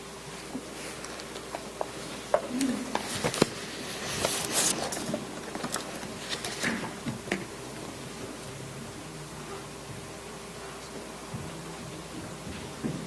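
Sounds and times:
paper rustling: 2.5 - 7.2.

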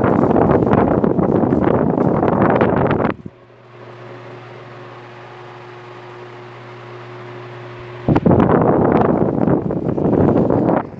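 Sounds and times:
wind gusts hitting microphone: 0.0 - 3.4, 7.6 - 10.9
electric fan motor hum: 0.0 - 10.9.

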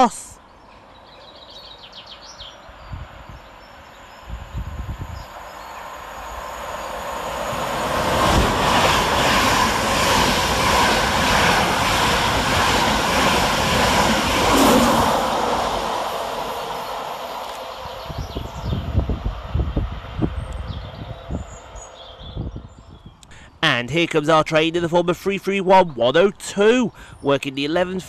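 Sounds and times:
train wheels rumbling on rail: 3.0 - 23.0.

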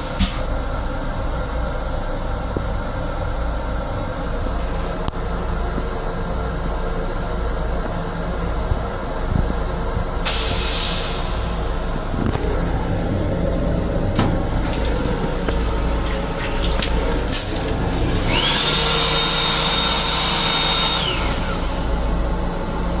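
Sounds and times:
railcar rumble: 0.0 - 18.9, 21.0 - 23.0
faucet water running with whine: 14.2 - 22.3.

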